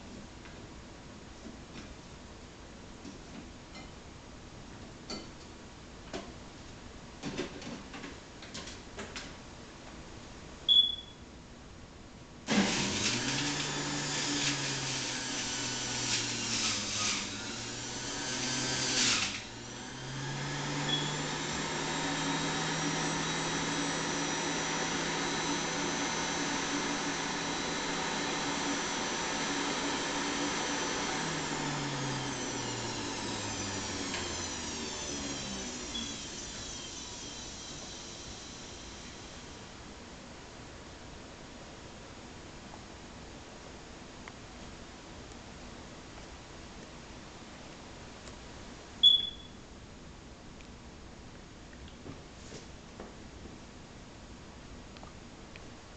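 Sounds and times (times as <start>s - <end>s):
short beep: 10.7s - 11.2s, 49.0s - 49.6s
juicer motor running: 12.5s - 39.6s.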